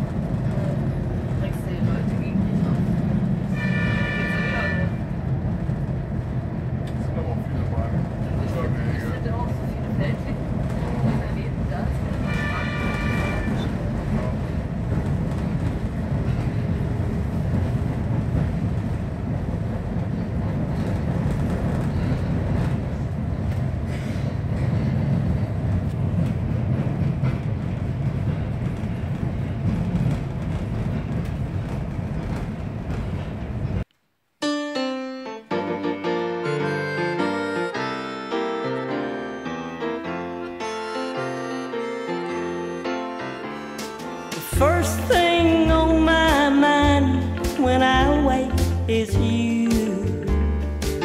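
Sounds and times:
train engine and wheels rumbling: 0:00.0 - 0:33.9, 0:36.0 - 0:51.0
piano music: 0:34.4 - 0:51.0.

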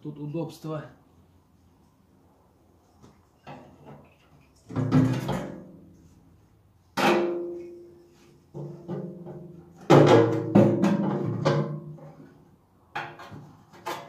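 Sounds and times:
hollow metal tank clangs: 0:04.7 - 0:05.9, 0:07.0 - 0:07.8, 0:08.5 - 0:12.2.

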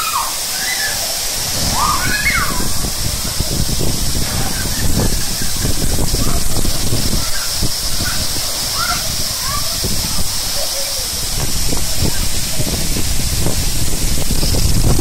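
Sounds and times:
short high squeals: 0:00.0 - 0:02.8
water rushing through slide tube: 0:00.0 - 0:15.0.

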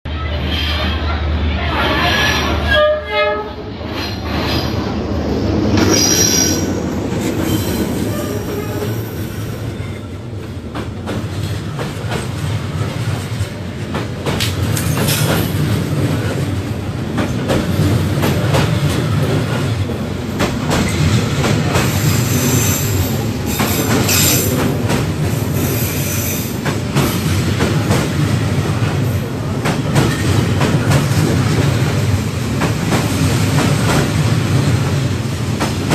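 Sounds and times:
train wheels rumbling on rails: 0:00.1 - 0:35.9
train horn: 0:02.6 - 0:03.7, 0:08.0 - 0:09.0.

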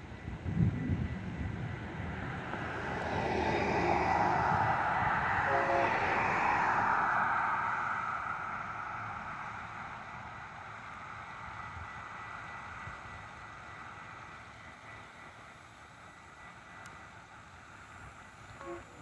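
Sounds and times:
cars driving past: 0:02.0 - 0:12.8
horn-like tone: 0:05.4 - 0:06.5, 0:18.6 - 0:19.0.

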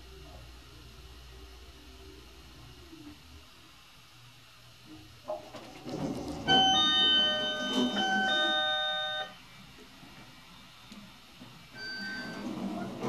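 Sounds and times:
elevator car and doors rumbling: 0:05.4 - 0:09.3, 0:11.8 - 0:13.0
elevator door chime: 0:06.4 - 0:09.4, 0:11.8 - 0:13.0.

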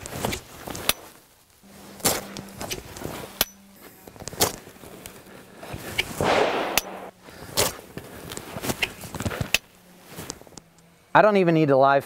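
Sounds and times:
jacket fabric rustling: 0:06.9 - 0:10.6.

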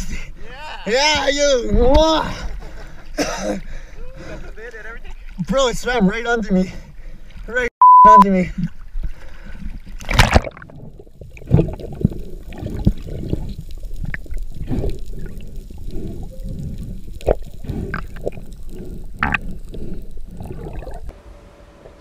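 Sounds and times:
muffled underwater gurgling: 0:11.2 - 0:21.1.

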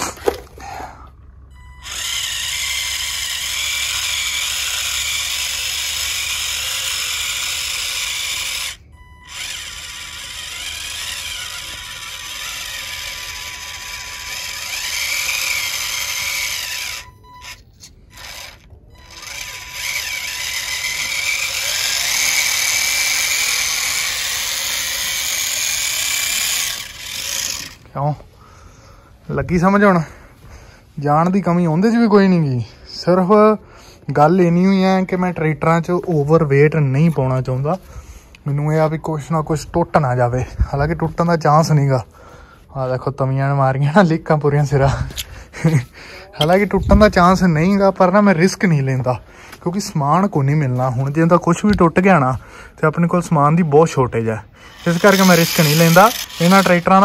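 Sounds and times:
toy tractor motors whining: 0:00.0 - 0:30.3, 0:44.6 - 0:57.0.

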